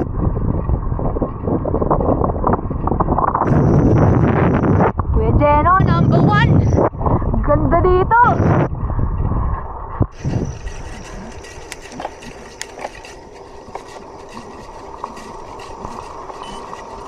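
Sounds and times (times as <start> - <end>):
bike rattling and clicking: 0.0 - 4.4, 8.8 - 17.0
bike tyres on rough trail: 0.0 - 4.6, 8.8 - 17.0.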